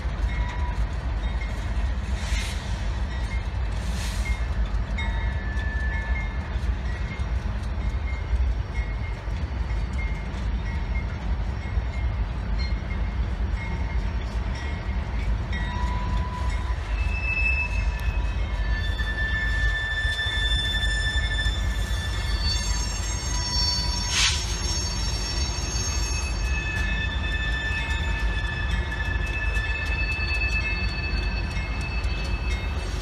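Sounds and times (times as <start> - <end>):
locomotive engine rumble: 0.0 - 33.0
high wheel squeals: 15.5 - 33.0.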